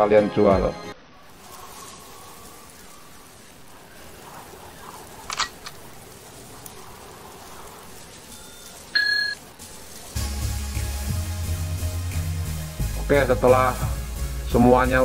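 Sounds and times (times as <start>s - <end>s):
music with a bass line: 10.2s - 15.0s.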